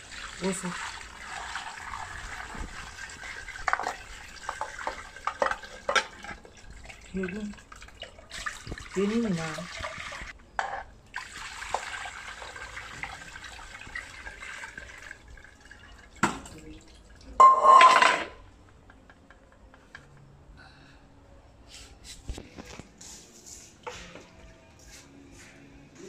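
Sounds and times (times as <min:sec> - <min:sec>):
liquid pouring through a sieve: 0:00.0 - 0:10.4, 0:11.1 - 0:17.4
metallic cookware clatter: 0:17.4 - 0:18.4.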